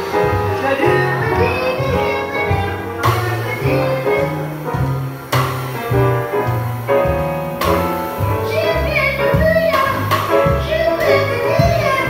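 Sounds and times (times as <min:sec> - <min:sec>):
drum kit: 0:00.0 - 0:12.0
grand piano: 0:00.0 - 0:12.0
walking upright bass: 0:00.0 - 0:12.0
woman singing: 0:00.4 - 0:04.5, 0:08.3 - 0:12.0.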